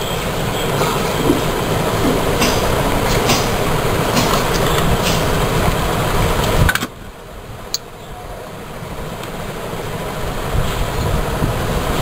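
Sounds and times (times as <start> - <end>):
loud rushing rumble: 0.2 - 7.6.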